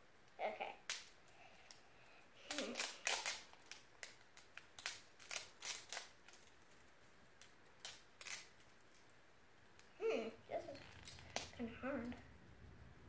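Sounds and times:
plastic wrapping crinkling: 2.4 - 9.9.

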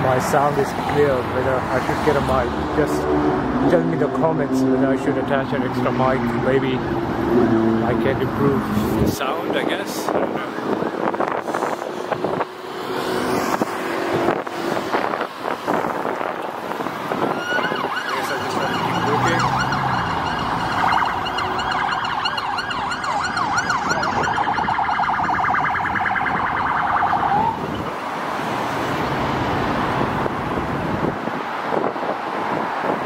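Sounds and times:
road traffic: 0.0 - 33.0
emergency vehicle siren: 10.1 - 28.0.

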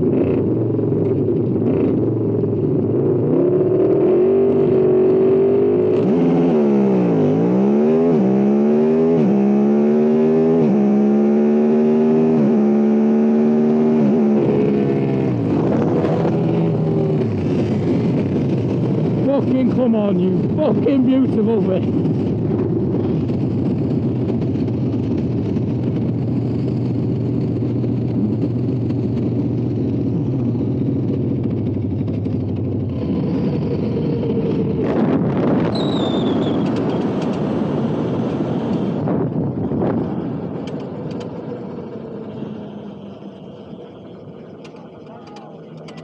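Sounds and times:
motor vehicle running: 0.0 - 46.0
high squeal sliding down: 35.7 - 36.9.

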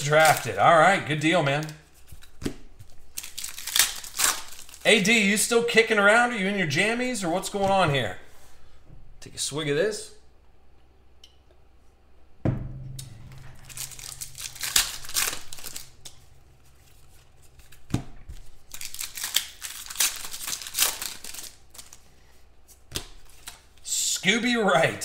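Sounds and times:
foil wrappers crinkling and tearing: 0.0 - 5.1, 13.6 - 16.1, 16.7 - 23.8
knock: 12.4 - 13.8.

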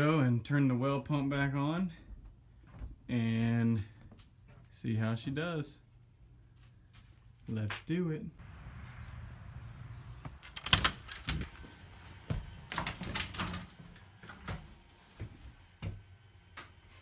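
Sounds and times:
footsteps indoors: 1.6 - 4.8, 10.1 - 17.0
door opening and shutting: 10.1 - 14.8.

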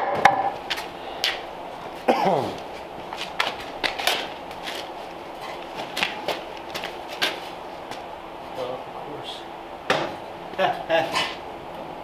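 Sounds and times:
footsteps on concrete: 0.6 - 8.1.

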